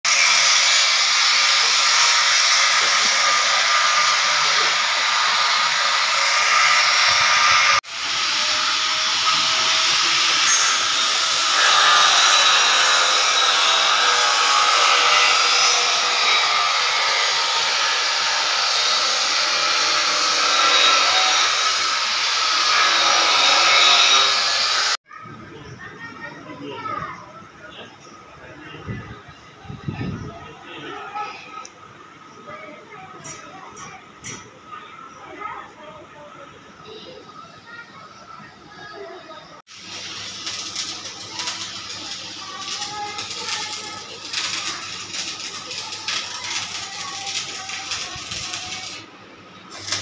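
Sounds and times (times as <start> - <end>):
angle grinder cutting steel: 0.1 - 25.0, 39.7 - 49.1, 49.7 - 50.0.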